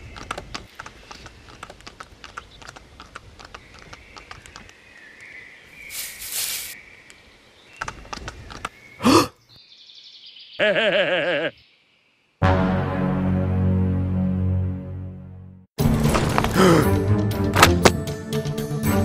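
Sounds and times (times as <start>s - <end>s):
horse hooves clip-clopping: 0.0s - 4.8s, 7.8s - 8.8s
rush of hiss: 5.8s - 6.8s.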